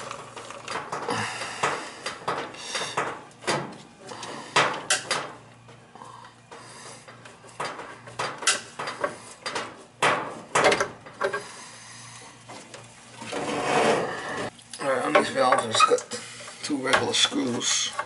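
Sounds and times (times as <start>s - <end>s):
hose knocking and clattering: 0.0s - 3.9s, 6.5s - 11.4s.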